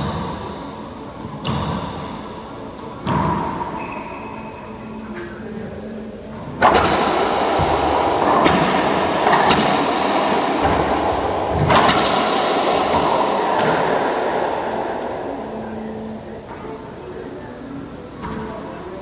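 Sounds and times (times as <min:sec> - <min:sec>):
racquetball hitting racquets and walls: 0:00.0 - 0:04.3, 0:06.4 - 0:16.4.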